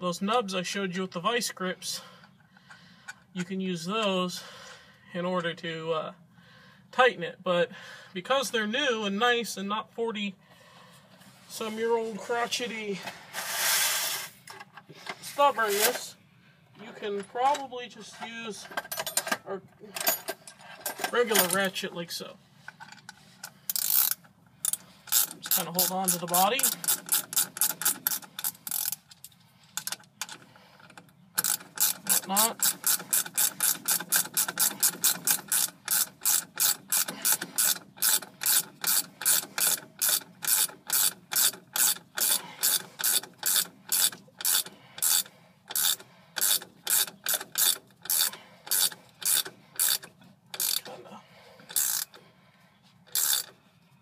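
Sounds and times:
socket ratchet clicking: 23.7 - 29.2, 31.4 - 50.9, 51.7 - 52.2, 53.1 - 53.6.

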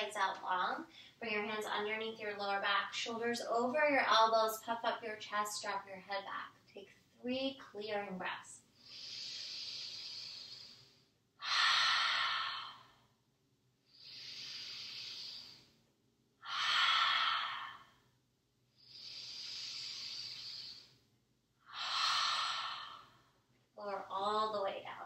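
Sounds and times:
woman inhaling deeply: 8.8 - 13.1, 13.9 - 15.8, 16.4 - 18.0, 18.8 - 21.0, 21.7 - 23.4.

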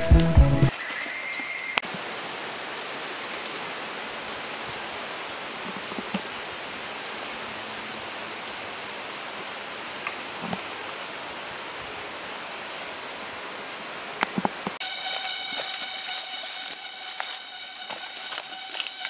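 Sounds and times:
music: 0.0 - 0.7
rainforest hiss: 0.0 - 19.0
insect chorus: 0.7 - 19.0.

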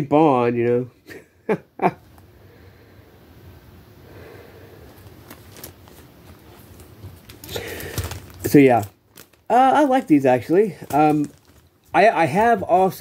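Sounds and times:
low room noise: 0.0 - 13.0
breath sounds: 2.3 - 3.4, 4.0 - 8.4.

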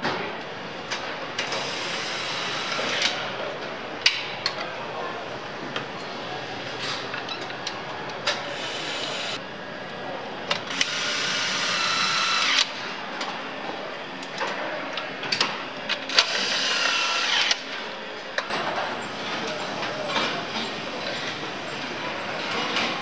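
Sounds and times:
factory hum: 0.0 - 23.0.

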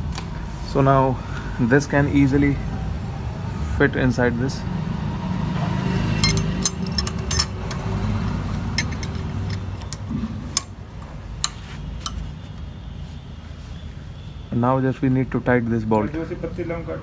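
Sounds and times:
light metal clicks and taps: 6.2 - 10.8, 11.4 - 12.2.

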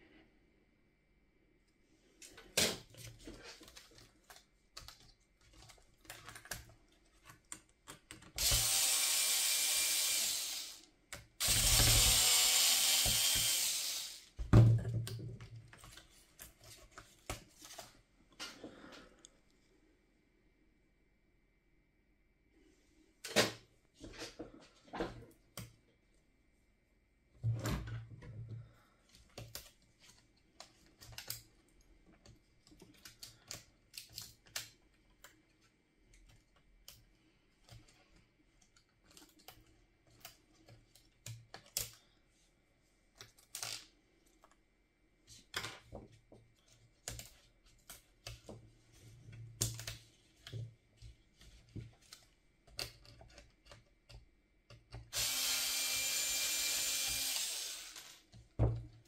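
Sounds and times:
small parts clicking and tapping: 29.1 - 42.1, 49.6 - 55.3.

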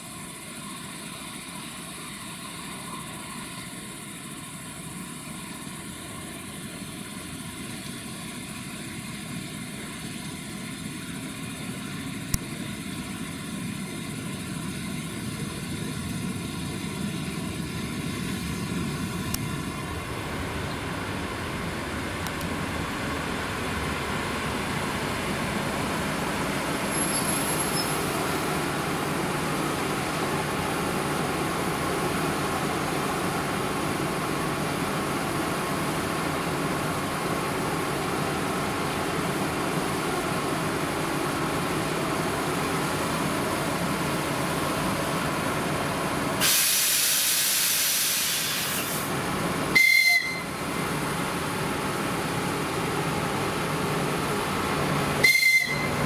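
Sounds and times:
train equipment humming: 0.0 - 56.0
short high whistle blast: 26.9 - 28.1, 49.8 - 50.5, 55.2 - 56.0
compressed air hiss: 46.4 - 49.2.

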